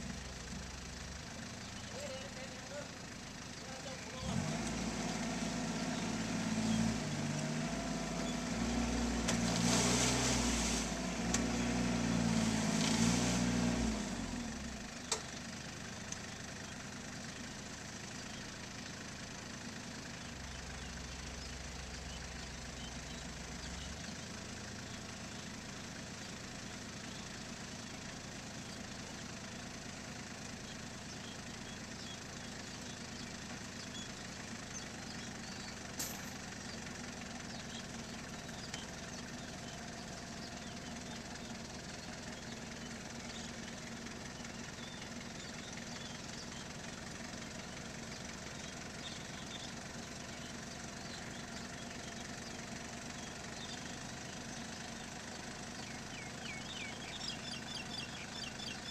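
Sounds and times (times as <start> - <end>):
tractor engine idling: 0.0 - 9.2, 13.9 - 58.9
tractor engine revving: 0.0 - 14.8.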